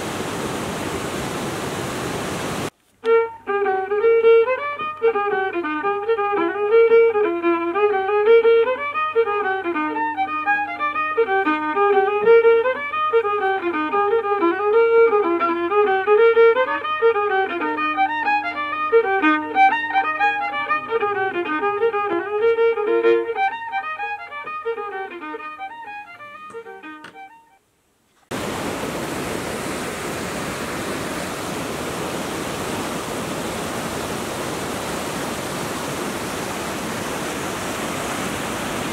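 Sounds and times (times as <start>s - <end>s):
river over rocky rapids: 0.0s - 2.7s, 28.3s - 38.9s
fiddle tune: 3.0s - 27.7s.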